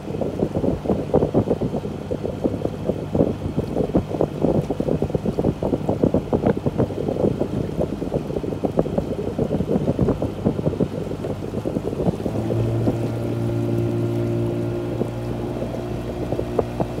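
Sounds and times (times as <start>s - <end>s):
motorboat hum: 0.0s - 17.0s
wind buffeting microphone: 0.0s - 17.0s.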